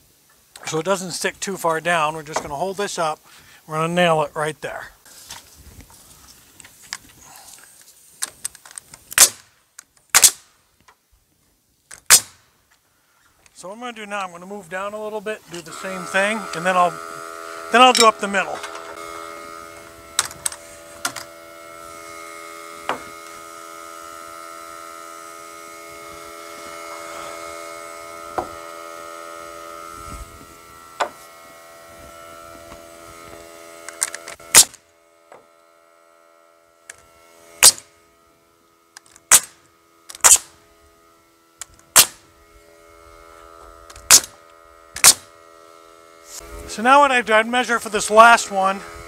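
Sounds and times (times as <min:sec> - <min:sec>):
nail gun shots: 0:09.1 - 0:10.6, 0:11.9 - 0:12.5, 0:33.9 - 0:34.8, 0:37.6 - 0:37.9, 0:39.2 - 0:40.6, 0:41.9 - 0:42.2, 0:43.9 - 0:44.4, 0:45.0 - 0:45.3
steady hum: 0:11.6 - 0:49.0.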